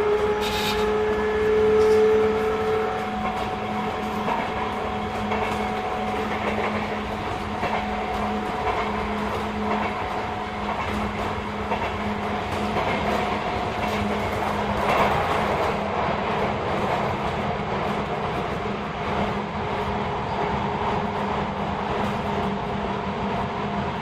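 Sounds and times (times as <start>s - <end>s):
train rumble with motor tone: 0.0s - 24.0s
wheels clicking over rail joints: 3.0s - 15.8s.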